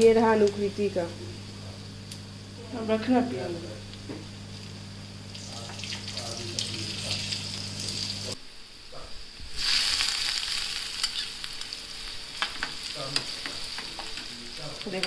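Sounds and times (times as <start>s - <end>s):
onions sizzling in frying pan: 0.0s - 15.0s
hot fat poured hissing: 4.4s - 8.4s, 9.4s - 15.0s.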